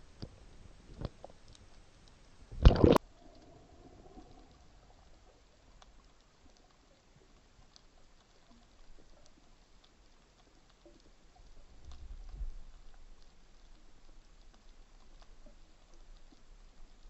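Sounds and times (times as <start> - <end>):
faint underwater ticks and clicks: 0.0 - 17.0
underwater rushing burst: 2.6 - 4.8.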